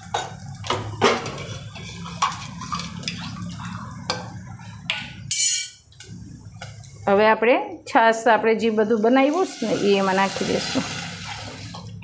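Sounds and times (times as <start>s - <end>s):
onions frying: 8.6s - 12.0s.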